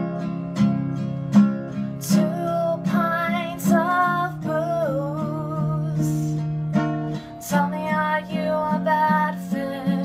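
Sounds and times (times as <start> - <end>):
acoustic guitar strummed: 0.0 - 10.0.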